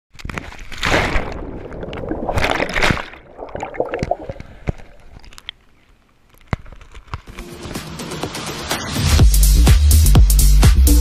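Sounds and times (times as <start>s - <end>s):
water sloshing and splashing: 0.2s - 5.8s.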